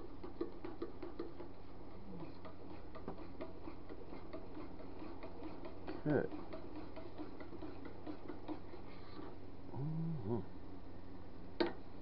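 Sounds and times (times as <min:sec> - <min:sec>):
steady low hum: 0:00.0 - 0:12.0
stirring rod ticking on metal pot: 0:00.2 - 0:01.6, 0:02.3 - 0:08.7.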